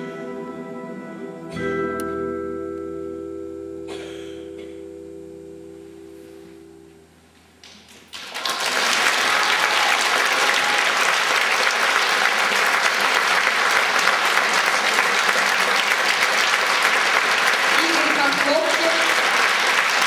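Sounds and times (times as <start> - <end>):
audience applauding: 7.6 - 20.0.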